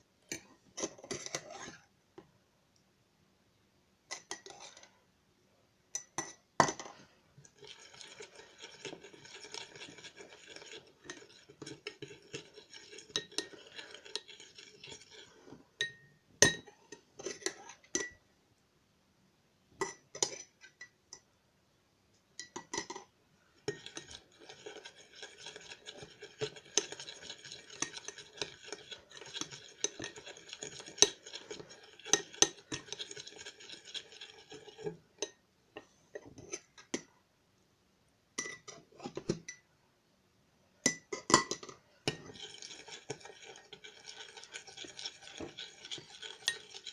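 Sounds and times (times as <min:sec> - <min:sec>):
spoon scraping glass bowl: 0:00.3 - 0:01.9, 0:04.1 - 0:05.0, 0:06.0 - 0:18.2, 0:23.6 - 0:37.0, 0:38.4 - 0:39.6, 0:40.9 - 0:46.9
spoon clinking on glass: 0:44.1 - 0:46.9.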